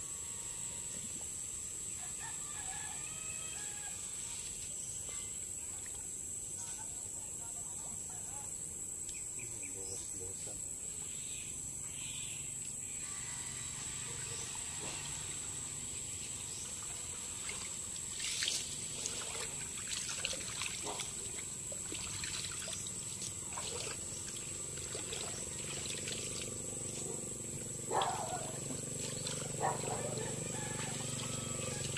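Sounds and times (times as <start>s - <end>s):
high drone of insects: 0.0s - 31.9s
pond water splashing: 16.2s - 31.9s.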